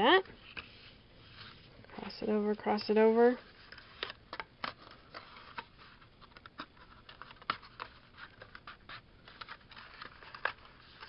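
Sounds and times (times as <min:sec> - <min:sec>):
paper rustling and scraping: 0:03.4 - 0:11.0.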